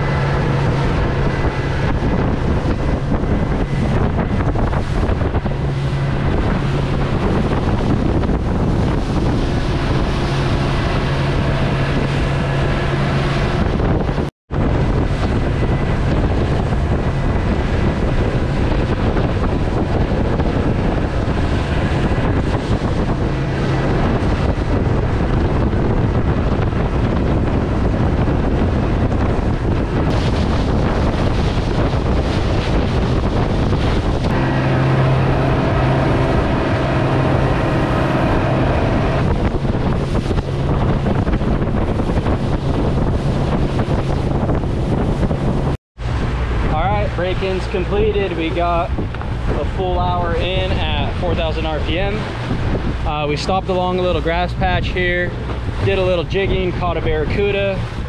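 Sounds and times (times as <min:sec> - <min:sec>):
outboard motor running: 0:00.0 - 0:58.0
water rushing past hull: 0:00.0 - 0:58.0
wind buffeting microphone: 0:00.0 - 0:58.0.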